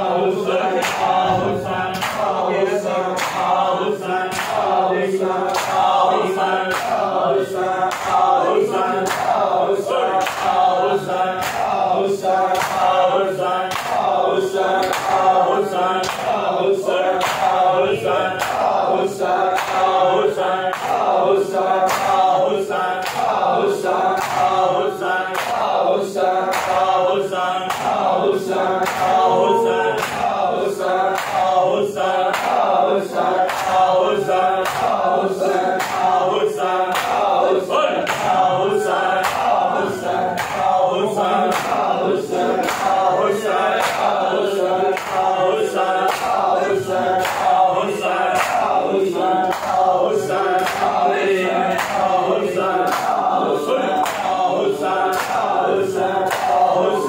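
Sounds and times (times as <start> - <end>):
men chanting in unison: 0.0 - 57.0
hands slapping chests: 0.8 - 2.4, 3.2 - 3.7, 4.3 - 4.8, 5.4 - 6.0, 6.7 - 7.1, 7.8 - 8.4, 9.0 - 9.5, 10.2 - 10.7, 11.4 - 11.8, 12.5 - 13.0, 13.7 - 14.1, 14.8 - 15.4, 16.0 - 16.4, 17.2 - 17.7, 18.3 - 18.8, 19.5 - 20.0, 20.7 - 21.1, 21.8 - 22.3, 23.0 - 24.6, 25.3 - 25.8, 26.4 - 27.0, 27.7 - 28.1, 28.7 - 30.4, 31.1 - 31.6, 32.2 - 32.8, 33.4 - 36.2, 36.9 - 37.4, 38.0 - 38.5, 39.1 - 45.3, 45.9 - 51.0, 52.8 - 53.3, 53.9 - 54.4, 55.1 - 55.5, 56.2 - 56.7.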